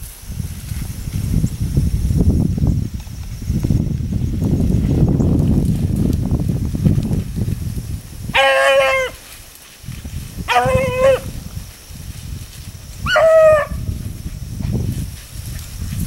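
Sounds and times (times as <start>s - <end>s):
dog baying: 8.4s - 9.2s, 10.5s - 11.3s, 13.1s - 13.8s.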